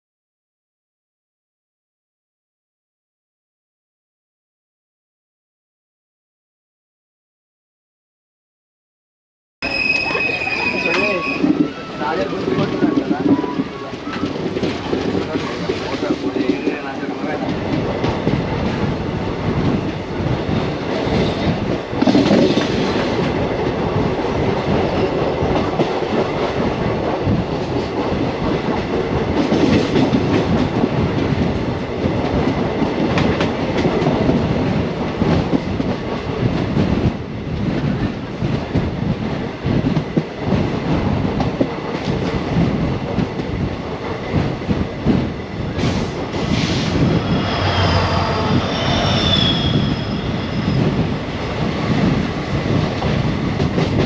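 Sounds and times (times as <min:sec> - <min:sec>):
train wheels rumbling: 0:09.6 - 0:54.0
rush of air: 0:45.5 - 0:53.4.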